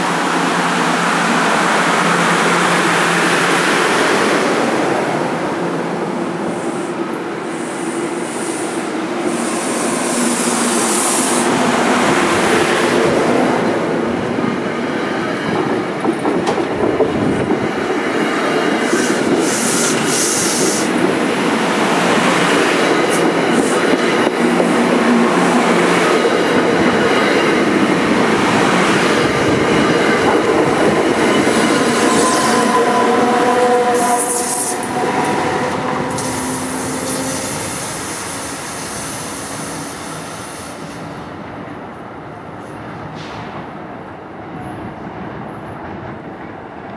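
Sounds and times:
train wheels rumbling and rattling: 0:08.9 - 0:41.4.

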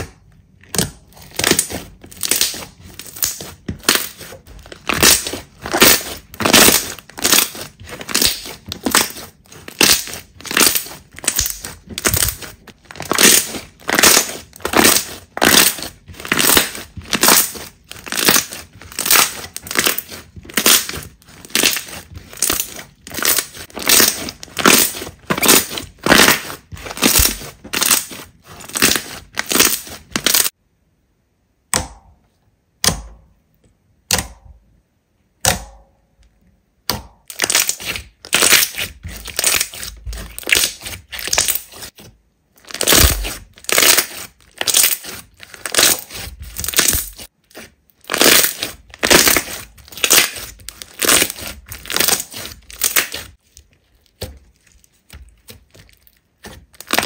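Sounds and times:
slime crackling when squeezed: 0:00.7 - 0:30.5, 0:42.6 - 0:57.0.

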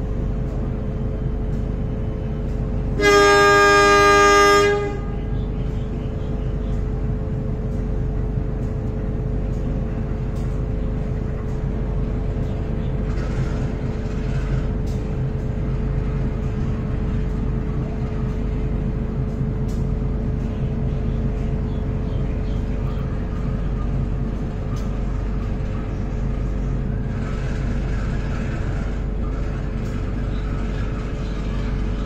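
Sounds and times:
constant low hum: 0:00.0 - 0:32.0
train rumbling on rails: 0:00.0 - 0:32.0
diesel train horn blast: 0:02.8 - 0:05.8.

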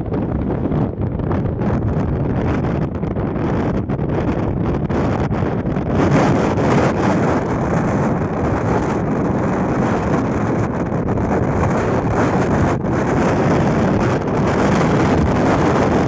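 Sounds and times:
wind blowing across microphone: 0:00.0 - 0:16.0.

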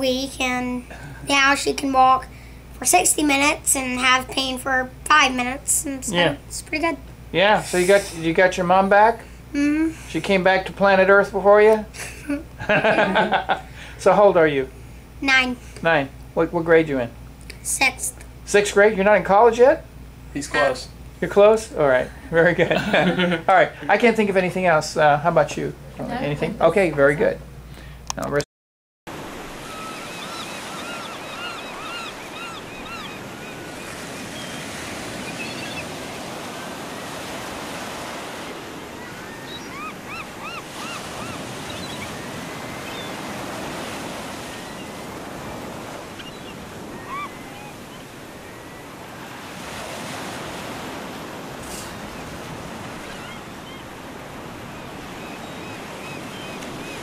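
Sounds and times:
ocean surf washing onto beach: 0:29.1 - 0:56.0.

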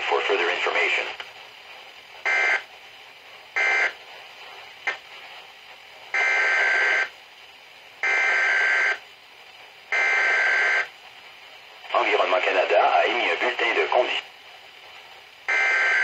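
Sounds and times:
faint radio hiss: 0:00.0 - 0:16.0
digital data tone bursts: 0:15.5 - 0:16.0.

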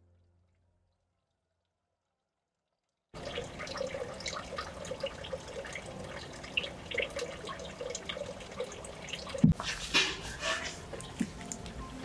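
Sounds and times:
water trickling and dripping: 0:03.2 - 0:12.0.

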